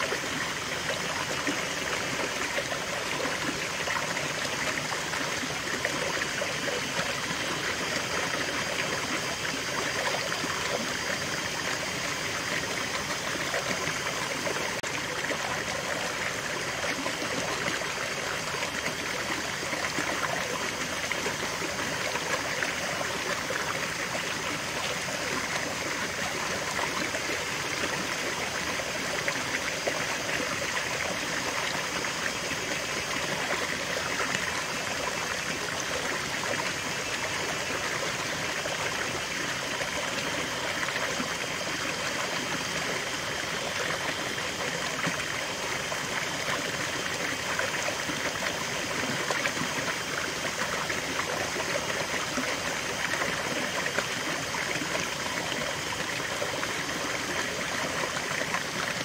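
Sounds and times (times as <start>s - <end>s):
stream splashing over rocks: 0.0s - 59.0s.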